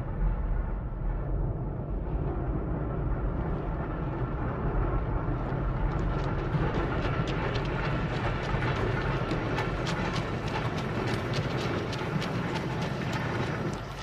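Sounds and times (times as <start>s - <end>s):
rail vehicle rumbling: 3.2s - 14.0s
wheels clattering on track: 5.9s - 14.0s.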